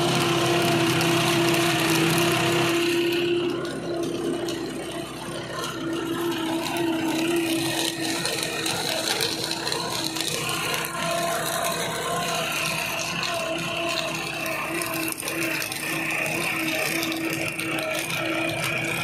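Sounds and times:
seed drill chains rattling and clicking: 0.0s - 19.0s
tractor engine running: 0.0s - 19.0s.

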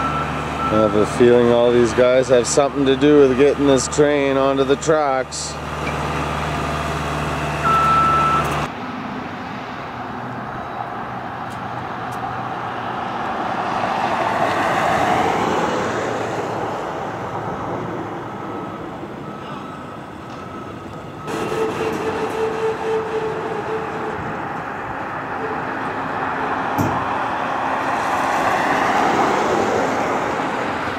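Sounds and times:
tone over engine: 0.0s - 8.8s, 17.1s - 28.6s
engine hum: 0.0s - 30.9s
vehicle rushing past: 6.0s - 18.5s, 24.4s - 30.9s
short high beep: 7.7s - 8.6s.

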